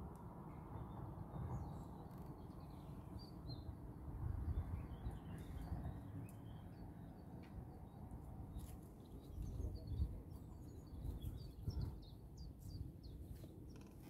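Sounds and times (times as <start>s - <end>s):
small birds chirping: 4.4s - 14.0s.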